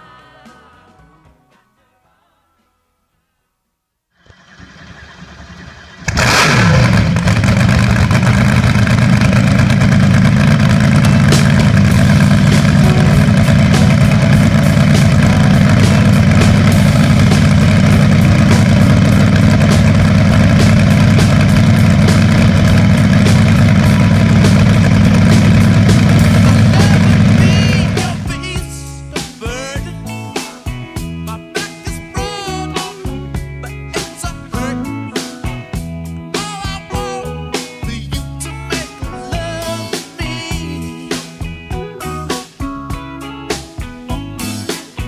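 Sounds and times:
boat engine starting and running: 0:04.2 - 0:28.5.

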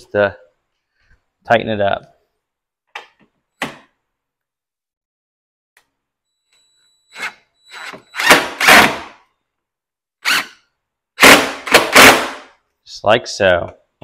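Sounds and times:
impact driver bursts: 0:07.1 - 0:09.2, 0:10.2 - 0:10.6, 0:11.2 - 0:12.5.

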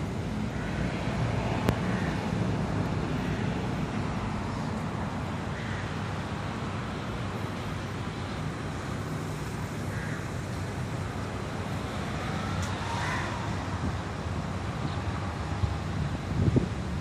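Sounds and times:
wind on microphone: 0:14.7 - 0:17.0.

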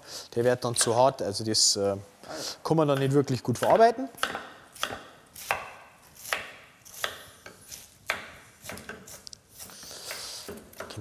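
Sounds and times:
knife chopping cabbage on board: 0:03.6 - 0:11.0.

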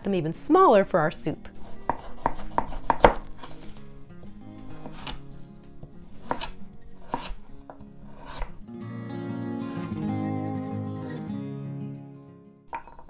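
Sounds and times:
background music: 0:00.0 - 0:13.0
knife chopping on wooden board: 0:01.6 - 0:03.7, 0:04.6 - 0:05.2, 0:05.8 - 0:08.6.

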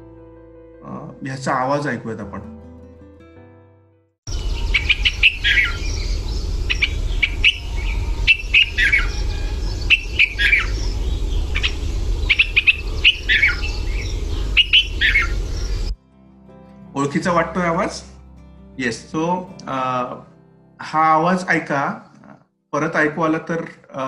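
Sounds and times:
bird chirping: 0:04.3 - 0:16.0
low background rumble: 0:04.3 - 0:16.0.

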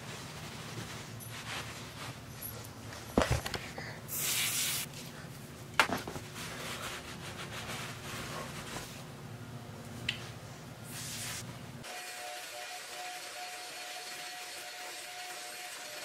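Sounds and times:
aerosol can spray hiss: 0:04.1 - 0:04.9.

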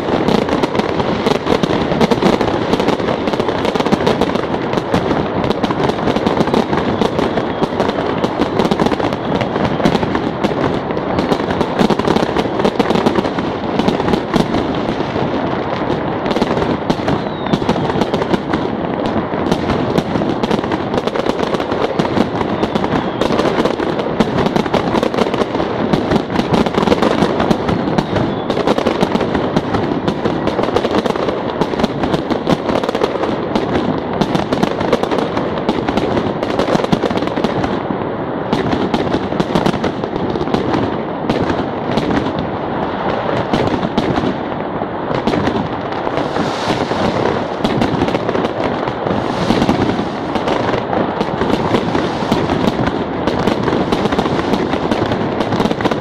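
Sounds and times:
fireworks and firecrackers banging: 0:00.0 - 0:56.0.

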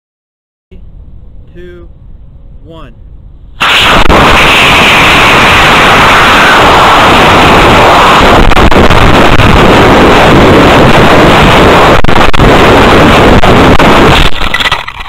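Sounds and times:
wind buffeting microphone: 0:03.6 - 0:14.5.

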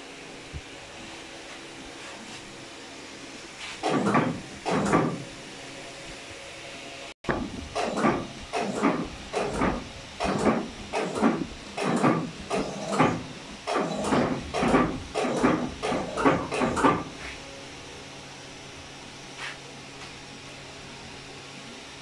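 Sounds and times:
cloth rubbing across press rollers: 0:07.7 - 0:17.4.

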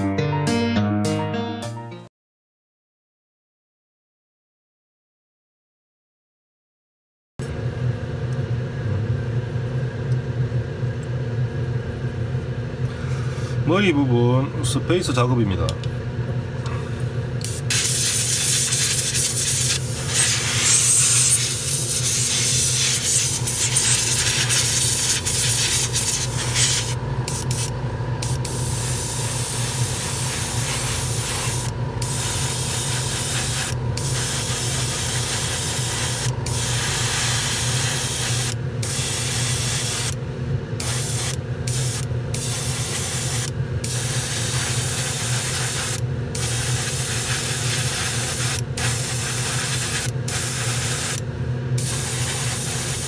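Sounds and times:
steady low hum: 0:07.4 - 0:53.0
airbrush spraying: 0:17.4 - 0:40.2, 0:40.8 - 0:51.2, 0:51.8 - 0:53.0.

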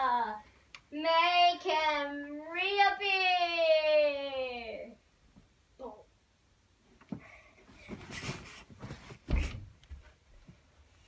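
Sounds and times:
faint rustling: 0:06.9 - 0:11.0
soft thump: 0:07.9 - 0:10.1.

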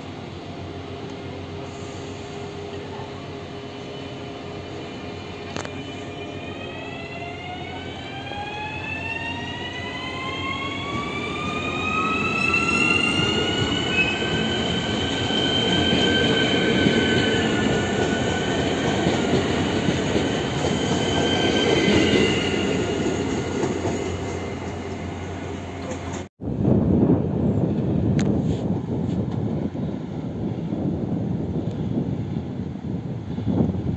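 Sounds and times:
electric train drive whining: 0:04.7 - 0:26.3.

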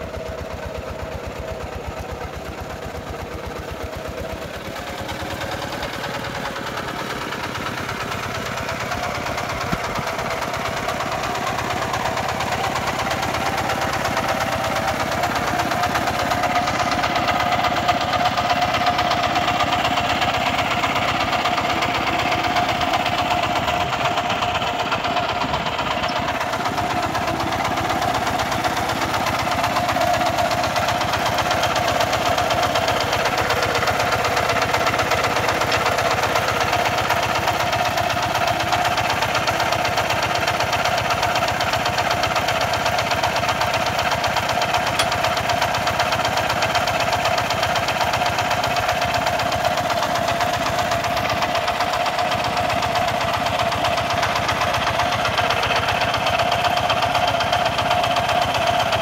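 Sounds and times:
diesel engine idling chugging: 0:00.0 - 0:59.0.

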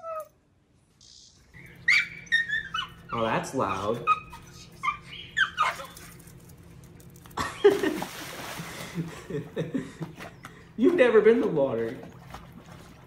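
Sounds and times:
dog whining: 0:00.0 - 0:00.4, 0:01.6 - 0:06.4
dog splashing into pool: 0:07.6 - 0:09.2, 0:10.0 - 0:13.0
churning water: 0:07.6 - 0:13.0.

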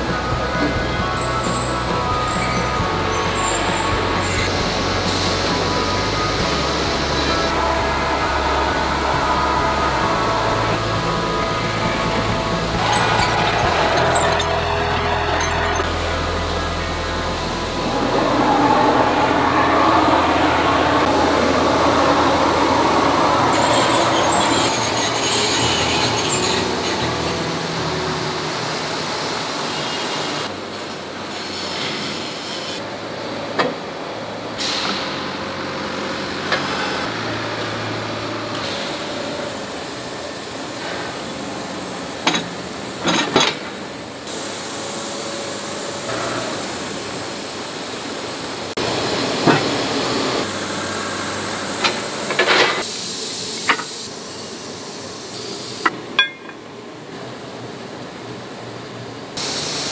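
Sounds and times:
furnace rushing: 0:00.0 - 0:28.2
machinery hum: 0:00.0 - 0:59.9
sharp metal clanks: 0:56.2 - 0:56.6.

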